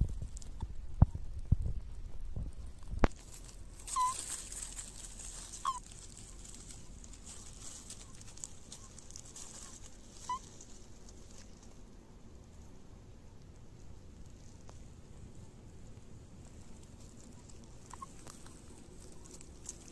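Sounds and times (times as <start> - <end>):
rustle of dry leaves: 0.0 - 19.9
toads chirping croaks: 17.4 - 18.6.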